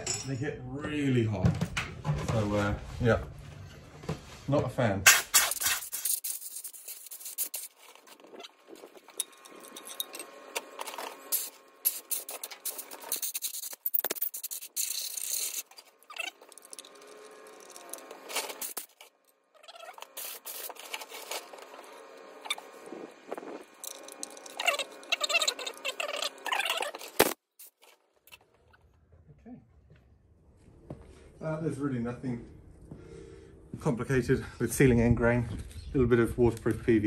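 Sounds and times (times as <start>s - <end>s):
tool scraping metal: 5.1s - 27.2s.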